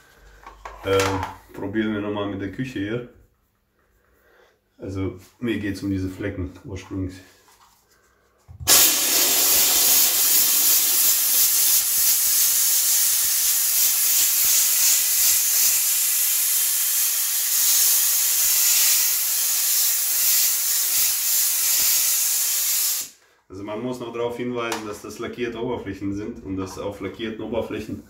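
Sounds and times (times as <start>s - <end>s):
steam cleaner hissing: 8.6s - 23.2s.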